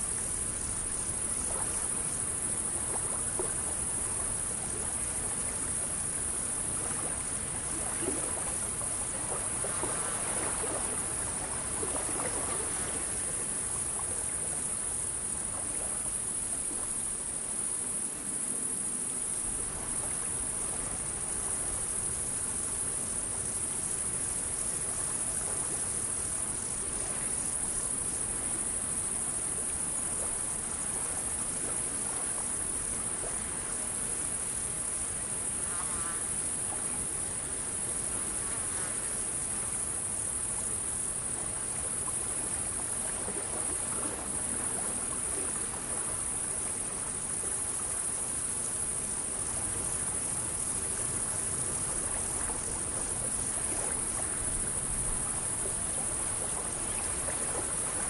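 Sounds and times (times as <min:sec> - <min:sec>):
water lapping: 0:00.0 - 0:17.4, 0:40.5 - 0:58.0
crickets trilling: 0:00.0 - 0:58.0.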